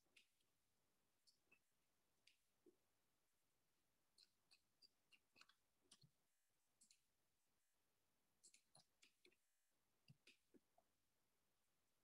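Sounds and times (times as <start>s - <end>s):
faint computer mouse clicks: 8.4s - 9.4s, 10.1s - 10.6s.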